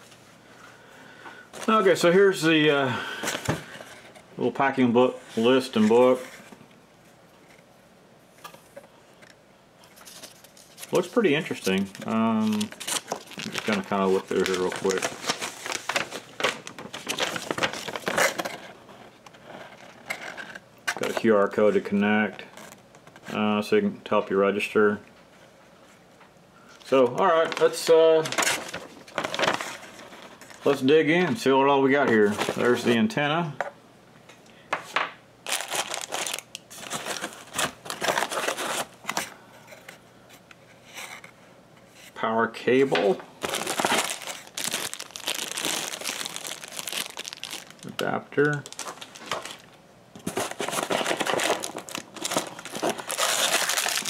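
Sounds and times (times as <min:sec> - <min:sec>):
paper sheet rustling and crinkling: 0:09.8 - 0:23.3, 0:26.8 - 0:30.9, 0:32.0 - 0:33.0, 0:35.5 - 0:39.3, 0:43.4 - 0:54.0.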